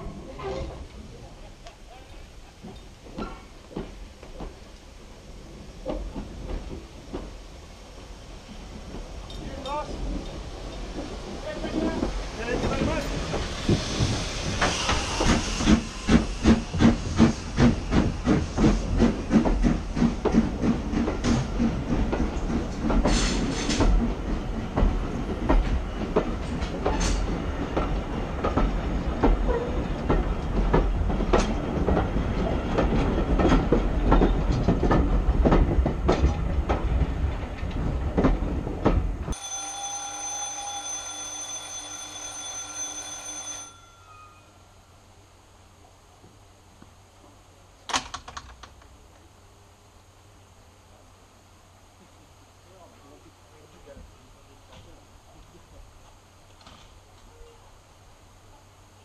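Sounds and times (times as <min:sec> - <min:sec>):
train wheels clicking over rail joints: 0:01.6 - 0:04.9, 0:05.7 - 0:39.4
steam locomotive chuffing: 0:05.3 - 0:37.4
steady electric ringing: 0:39.4 - 0:44.7.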